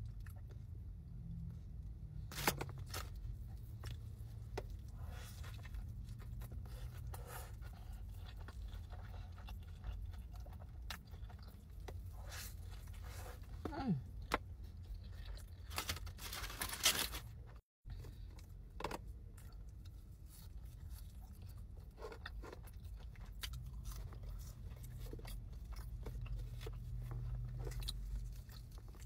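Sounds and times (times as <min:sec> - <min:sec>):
low steady hum: 0:00.0 - 0:29.0
chewing with mouth clicks: 0:03.3 - 0:15.8, 0:18.0 - 0:29.0.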